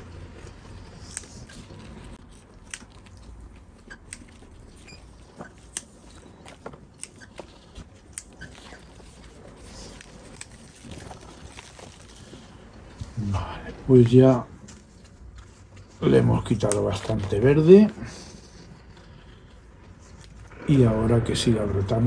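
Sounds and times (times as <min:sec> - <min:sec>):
scissors snipping leaves: 0:01.0 - 0:04.6, 0:06.9 - 0:08.8, 0:16.6 - 0:17.2.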